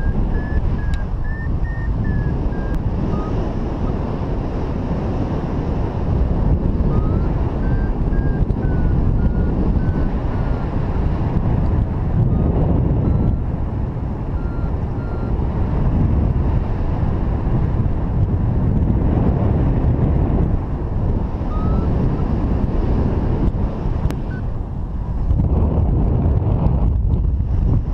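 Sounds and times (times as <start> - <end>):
variometer short beeps: 0.0 - 3.6, 6.8 - 10.9, 11.6 - 13.6, 14.3 - 15.4, 21.4 - 22.4, 24.0 - 24.5
wind buffeting microphone: 0.0 - 27.9.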